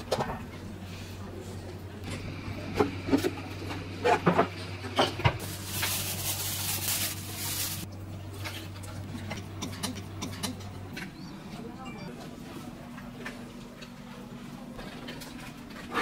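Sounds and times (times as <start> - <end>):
sharp clicks and knocks: 9.3 - 11.1.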